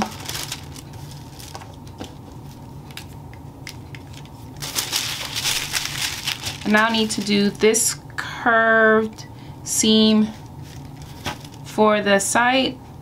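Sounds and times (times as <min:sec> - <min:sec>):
paper rustling: 0:00.0 - 0:03.2, 0:03.9 - 0:07.6, 0:10.6 - 0:11.7.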